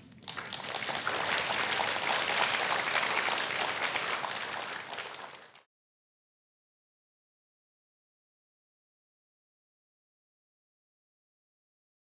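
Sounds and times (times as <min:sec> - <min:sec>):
large audience applauding: 0:00.0 - 0:05.7.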